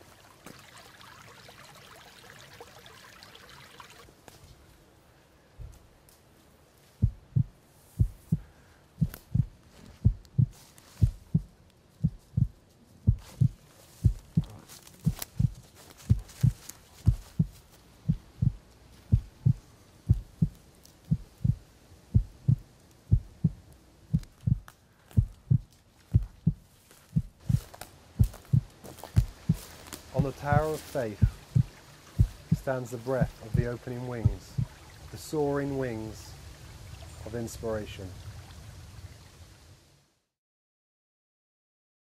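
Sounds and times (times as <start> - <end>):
slow heartbeat thumps: 5.6 - 5.9, 6.9 - 34.8.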